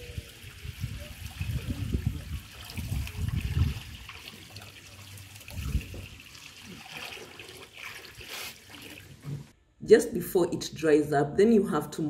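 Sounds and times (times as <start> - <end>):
water pouring into metal pan: 0.0 - 9.2.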